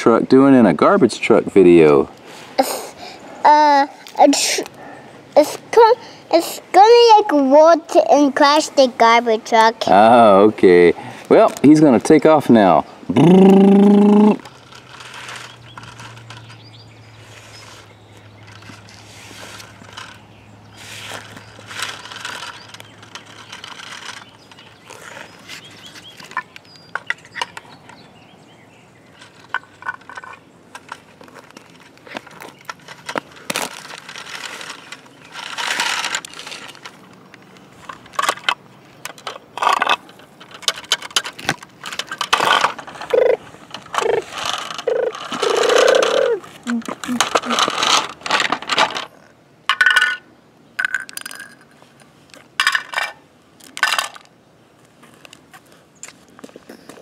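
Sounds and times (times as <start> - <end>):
toy truck wheels scraping on concrete: 14.4 - 27.5, 29.2 - 49.3
plastic toys clicking and knocking: 21.1 - 25.2, 29.2 - 50.2, 50.8 - 54.3.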